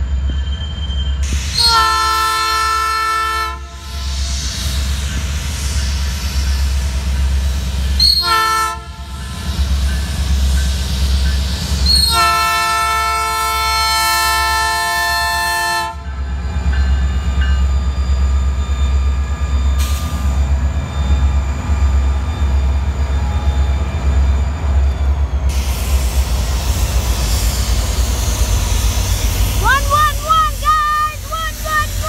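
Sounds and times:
train rumbling past: 0.0 - 32.0
locomotive multi-chime horn: 8.0 - 9.1, 11.9 - 16.2.

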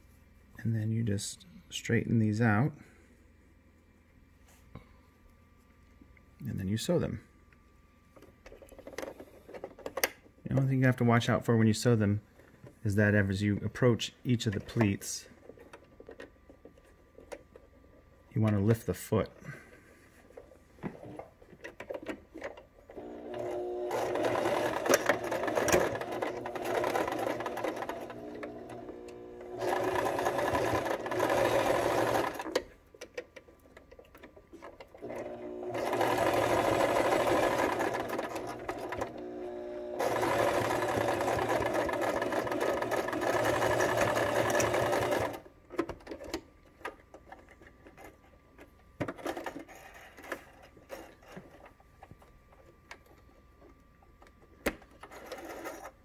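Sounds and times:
sewing machine stitching: 22.9 - 32.6, 34.9 - 45.5, 55.1 - 56.0.

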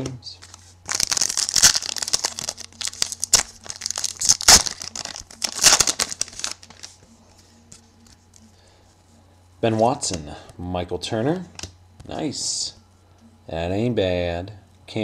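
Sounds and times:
plastic wrapper crinkling: 0.4 - 7.0.

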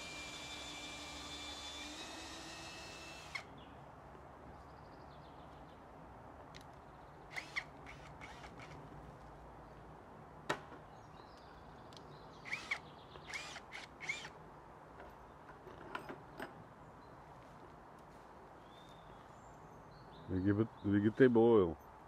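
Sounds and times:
cordless drill whining: 0.0 - 3.5, 7.4 - 8.8, 12.5 - 14.3.

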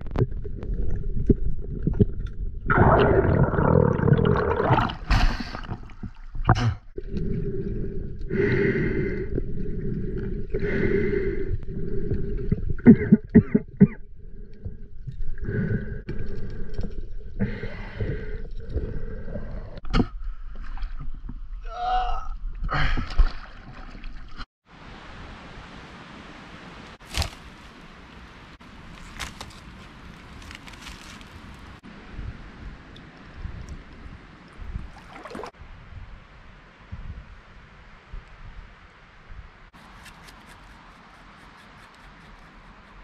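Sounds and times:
low hum: 0.0 - 21.6
muffled underwater breathing: 6.5 - 13.2, 14.0 - 20.6.

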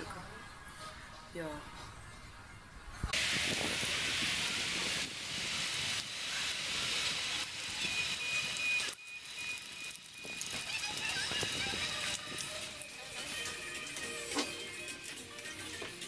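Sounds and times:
hissing street noise: 3.1 - 15.4.

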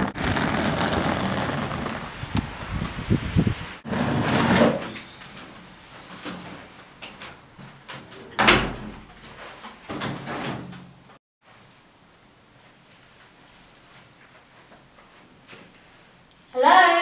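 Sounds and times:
pitched creak: 0.0 - 2.1.

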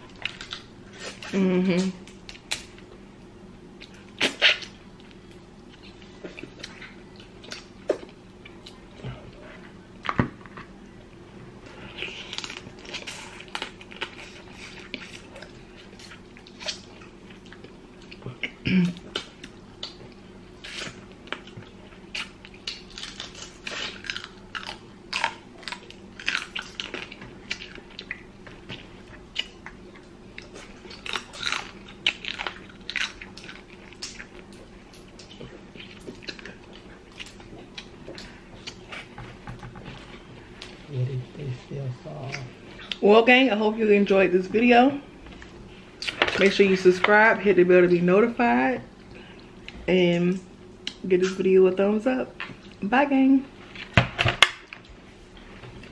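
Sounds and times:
chewing and wet mouth sounds: 11.0 - 40.9.

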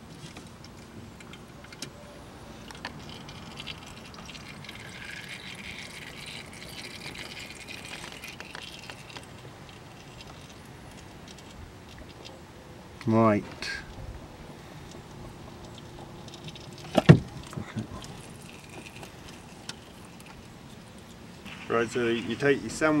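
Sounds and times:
oil trickling into a tin: 2.7 - 12.1, 15.4 - 21.2.

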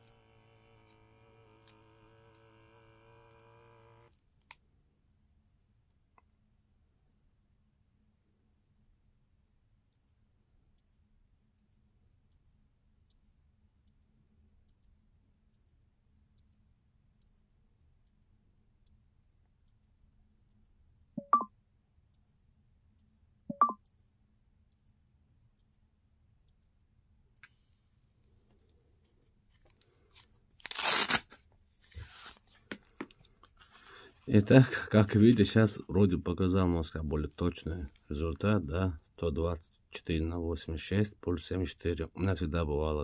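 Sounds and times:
short high beeps: 20.5 - 21.5, 23.0 - 24.0.

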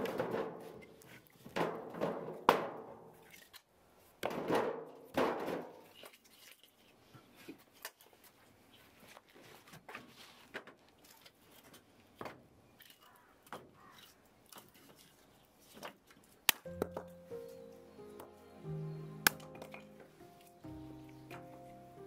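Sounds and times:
firewood logs knocking: 0.0 - 3.0, 16.6 - 17.2
sharp crack: 16.5 - 17.1, 19.2 - 20.0
background music: 16.6 - 22.0.

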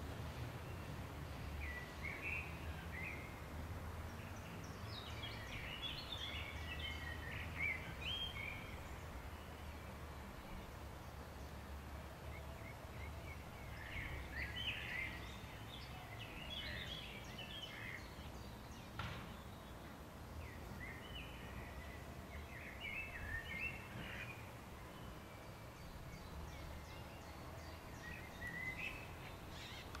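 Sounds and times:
small birds chirping: 25.7 - 30.0.

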